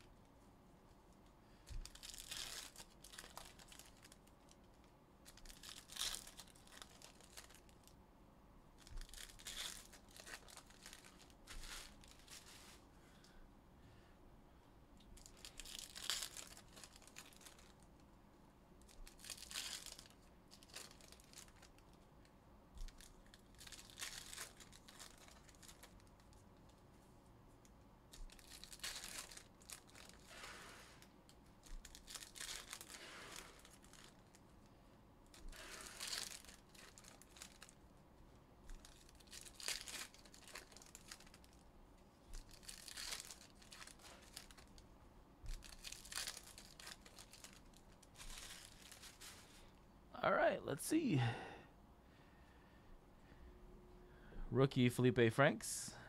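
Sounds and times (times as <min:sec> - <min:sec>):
card pack wrappers tearing: 0:01.8 - 0:04.3, 0:05.3 - 0:07.8, 0:08.8 - 0:12.5, 0:15.2 - 0:17.9, 0:18.8 - 0:22.0, 0:22.8 - 0:26.4, 0:28.1 - 0:34.4, 0:35.2 - 0:37.8, 0:38.7 - 0:41.6, 0:42.3 - 0:44.8, 0:45.5 - 0:49.5.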